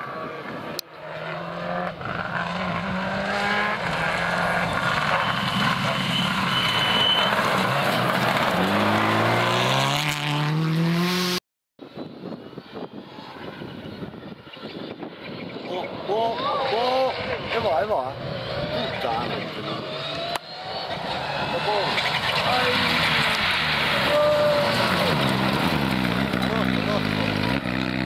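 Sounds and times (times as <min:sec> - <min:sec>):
distant rally car engine: 0:00.0 - 0:11.4, 0:12.5 - 0:28.0
rally car engine at high revs: 0:01.0 - 0:11.4, 0:18.2 - 0:28.0.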